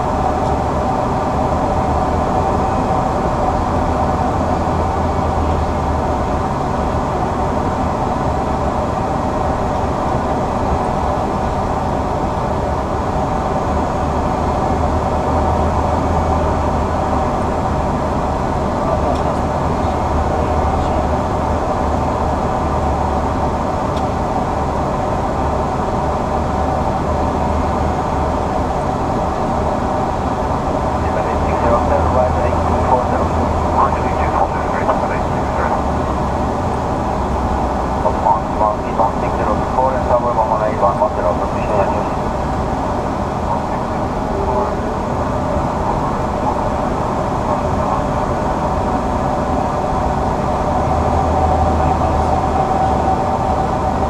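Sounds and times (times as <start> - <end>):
constant hum: 0.0 - 54.0.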